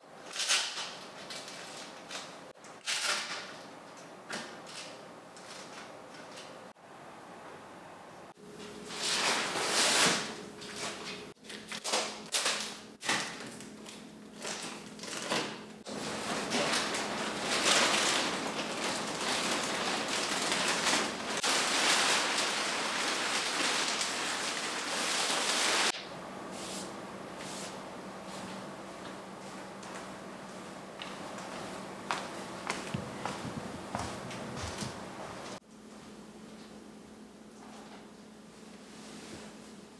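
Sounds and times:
plastic wrapping crinkling: 0:09.0 - 0:26.0.

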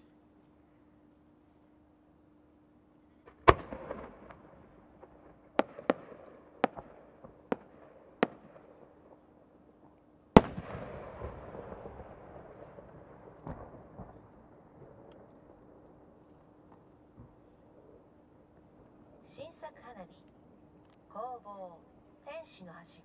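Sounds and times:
firework launch report: 0:03.2 - 0:18.1
firework bang: 0:03.3 - 0:08.6, 0:10.4 - 0:15.6
firework cracks: 0:03.3 - 0:09.2, 0:10.4 - 0:15.8.

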